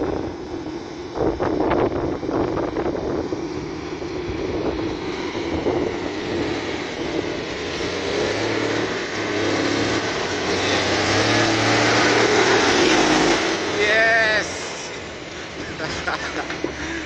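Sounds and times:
diesel truck engine approaching: 0:00.0 - 0:17.0.

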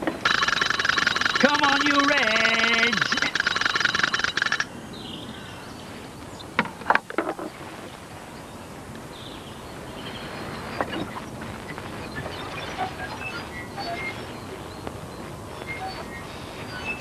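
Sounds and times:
football rattle clacking: 0:00.0 - 0:04.7
small clicks: 0:00.0 - 0:04.7
faint bird chirps: 0:07.4 - 0:17.0.

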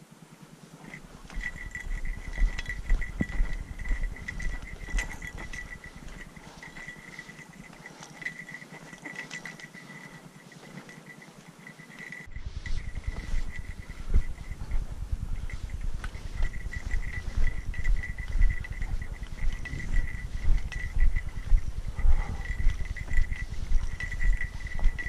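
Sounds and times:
fast high-pitched pulsing: 0:00.8 - 0:25.0
wind buffeting microphone: 0:01.0 - 0:07.0, 0:12.3 - 0:25.0.

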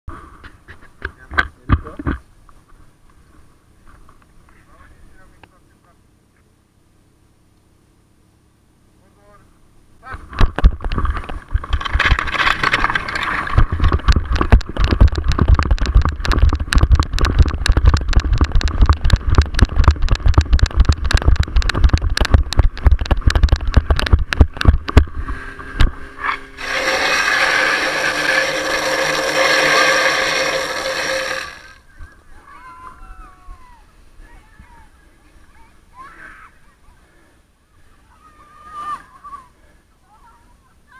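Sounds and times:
low wind rumble: 0:10.6 - 0:34.8
water jetting from hose nozzle: 0:26.6 - 0:31.8.

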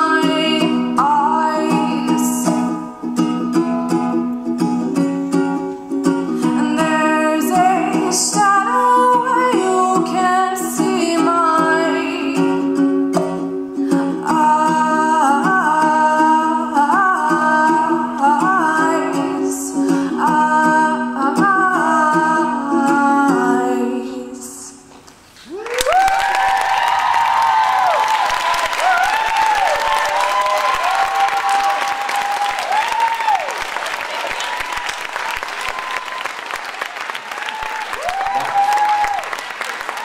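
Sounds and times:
woman singing: 0:00.0 - 0:02.9, 0:06.3 - 0:13.2, 0:13.8 - 0:24.9
ukulele strumming: 0:00.0 - 0:24.8.

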